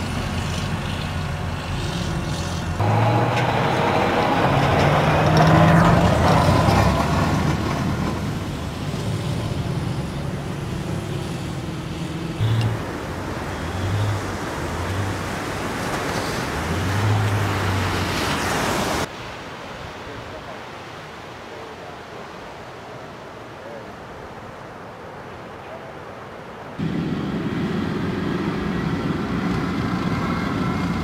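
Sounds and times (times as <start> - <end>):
tracked vehicle diesel engines: 0.0 - 19.1, 26.8 - 31.0
waves breaking: 2.7 - 31.0
water splashing: 12.4 - 19.8.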